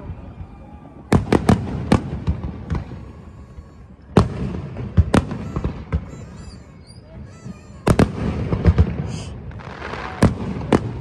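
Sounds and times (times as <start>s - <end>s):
fireworks bangs: 0.0s - 11.0s.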